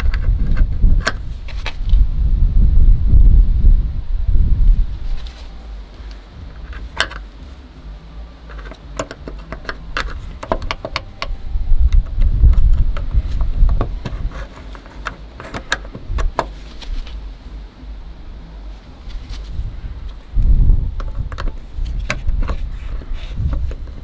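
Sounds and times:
wind rumble on microphone: 0.0 - 24.0.

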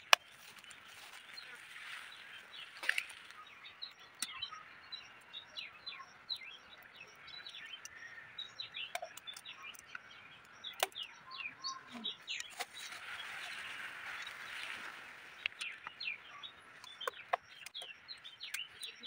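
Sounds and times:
small birds chirping: 0.0 - 19.0
sharp clicks: 7.4 - 11.2.

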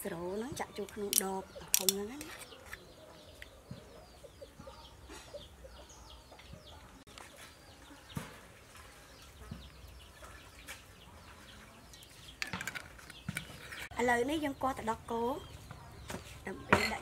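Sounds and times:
small birds chirping: 0.0 - 17.0
chickens clucking: 1.4 - 12.4.

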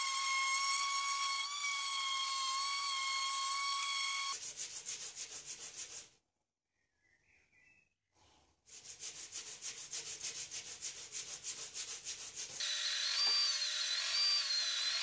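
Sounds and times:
sanding stick rasping: 4.3 - 6.1, 8.7 - 12.6.

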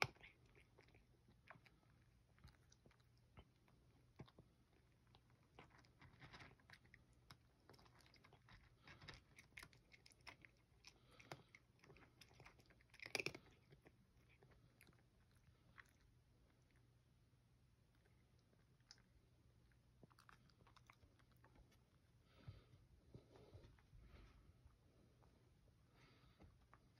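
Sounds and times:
cat crunching dry kibble: 0.0 - 17.0, 17.8 - 22.1.

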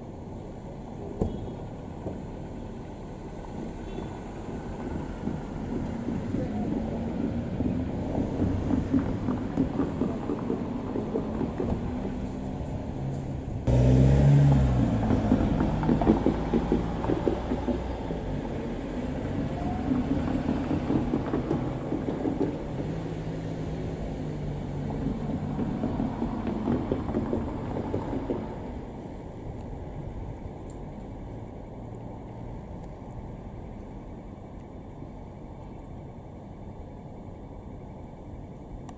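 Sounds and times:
diesel railcar engine rumble: 0.0 - 38.9
train wheels knocking over rail joints: 5.0 - 12.4, 15.0 - 18.3, 19.9 - 23.2, 24.9 - 28.7.

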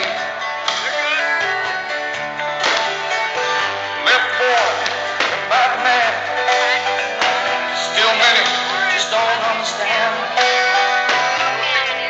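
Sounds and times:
strummed guitar: 0.0 - 12.0
person singing: 3.2 - 12.0.

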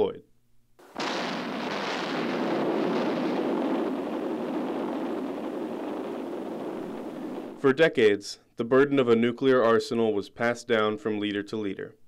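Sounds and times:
explosion blast: 0.8 - 7.6
rumbling rush of noise: 0.9 - 7.6.

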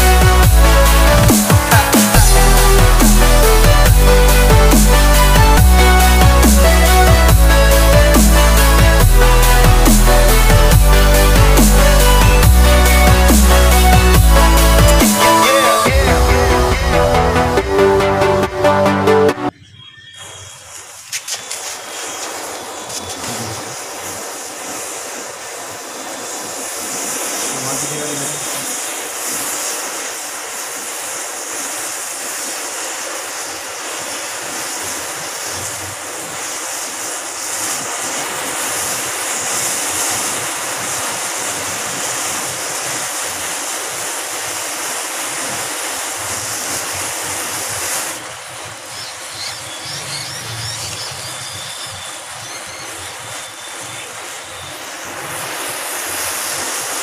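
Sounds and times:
matchsticks burning with rushing noise: 20.5 - 49.5, 50.2 - 57.0.

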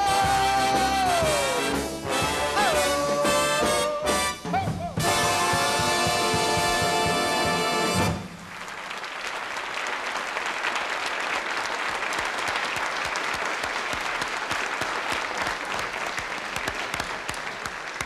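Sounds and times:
audience applauding: 5.8 - 18.0.

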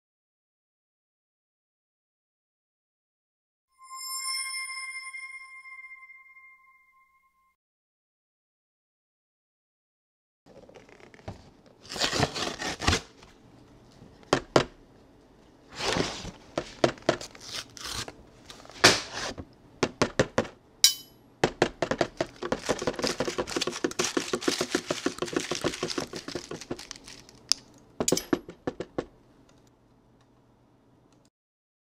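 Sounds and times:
wrapping crinkling and tearing: 10.5 - 13.3, 17.2 - 18.8, 22.2 - 27.8.

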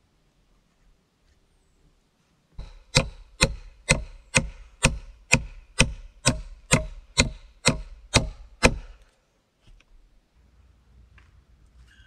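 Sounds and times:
chopping wood: 2.6 - 9.0.

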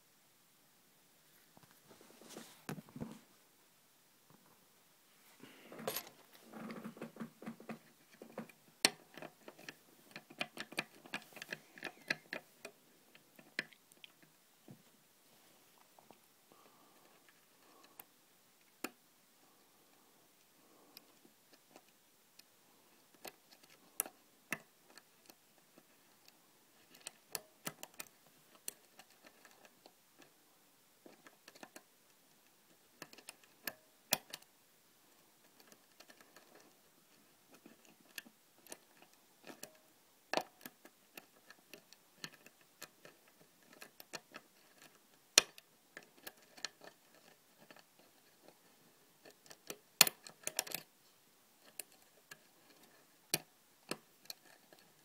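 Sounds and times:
lock pick clicking in lock: 49.2 - 50.9.

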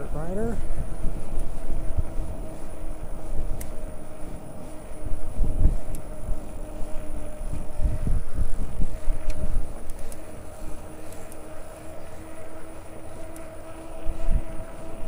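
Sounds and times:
electric bicycle motor whine: 0.0 - 15.0
wind buffeting microphone: 0.0 - 15.0.

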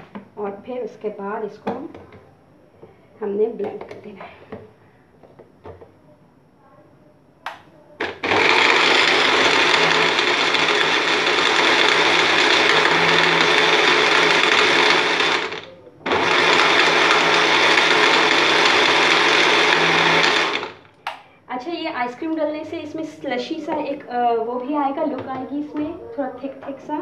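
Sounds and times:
blender motor running: 8.0 - 20.9.

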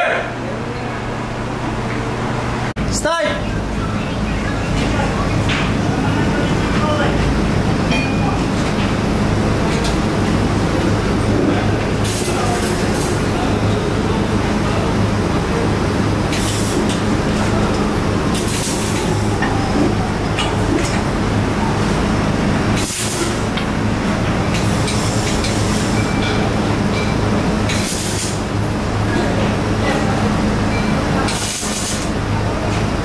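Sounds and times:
steady low hum: 0.0 - 31.3
welding arc crackling: 18.2 - 19.4, 31.3 - 32.2.

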